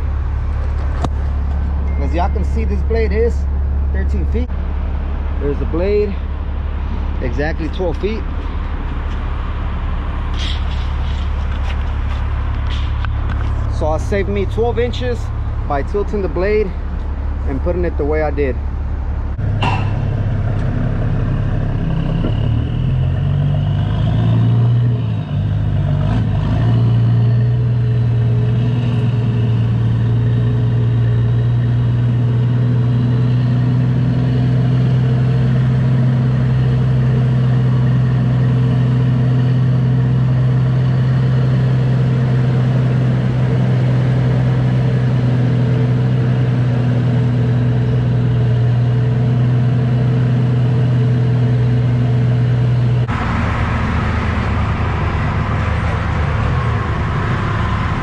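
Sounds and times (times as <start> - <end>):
diesel truck engine droning: 0.0 - 58.0.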